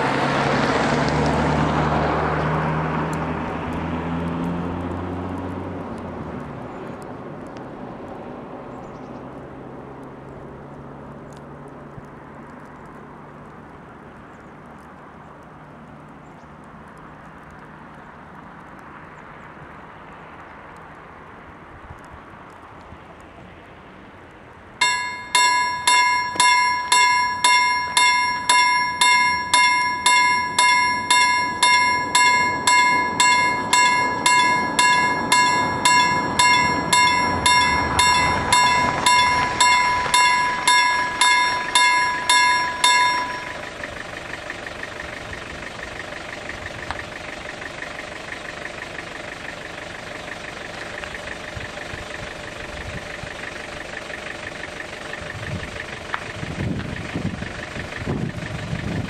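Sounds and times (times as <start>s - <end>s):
steady background noise: 24.6s - 44.0s
level crossing bell ringing: 24.8s - 43.7s.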